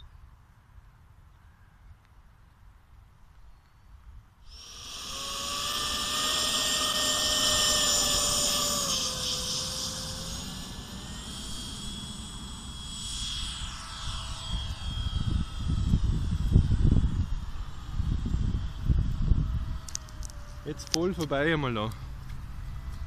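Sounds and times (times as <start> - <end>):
model jet engine whining: 4.4 - 23.0.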